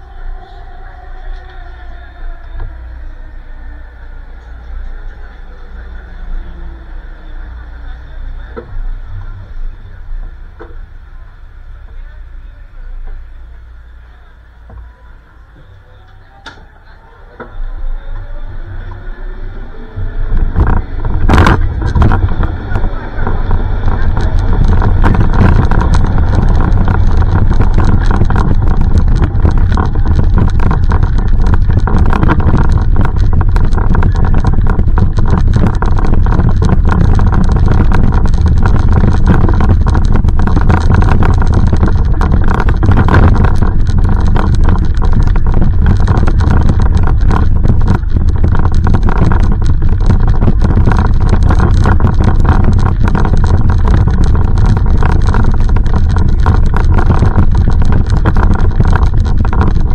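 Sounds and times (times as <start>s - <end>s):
wind on microphone: 17.4s - 59.9s.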